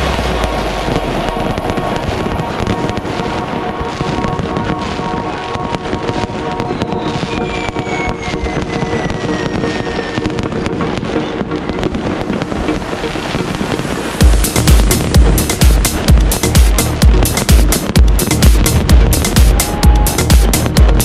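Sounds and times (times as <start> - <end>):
firecrackers banging and crackling: 0.0 - 21.0
whistling firework: 0.0 - 21.0.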